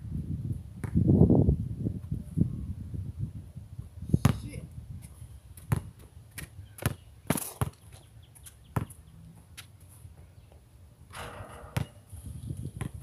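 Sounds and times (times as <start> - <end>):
basketball bouncing on concrete: 5.6 - 7.8, 8.7 - 9.0, 11.2 - 12.0, 12.8 - 13.0.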